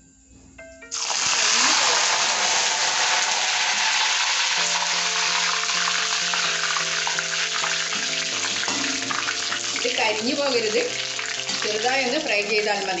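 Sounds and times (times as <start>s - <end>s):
faint background music: 0.0s - 13.0s
leaves sizzling in hot oil: 0.9s - 13.0s.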